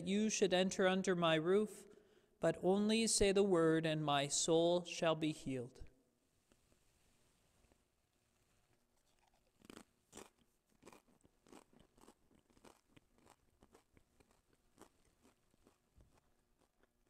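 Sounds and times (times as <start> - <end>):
person chewing wafer crunches: 9.0 - 17.0.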